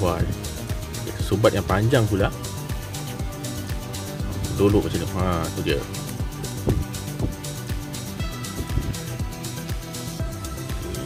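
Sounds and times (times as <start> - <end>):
electronic music with kick drum: 0.0 - 11.0.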